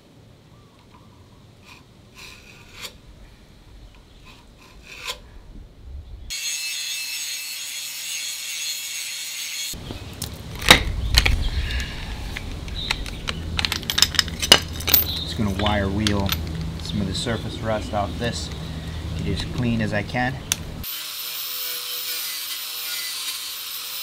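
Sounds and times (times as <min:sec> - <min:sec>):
light scraping and tool clicks: 0:01.6 - 0:03.0, 0:03.9 - 0:05.2
metal clanks and clatter: 0:12.8 - 0:16.9.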